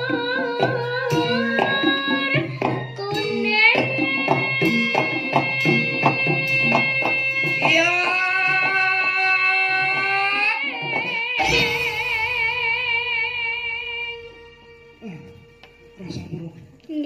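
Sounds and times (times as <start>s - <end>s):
gamelan accompaniment: 0.0s - 13.5s
girl singing long held notes: 0.0s - 16.0s
drum strokes: 0.0s - 16.2s.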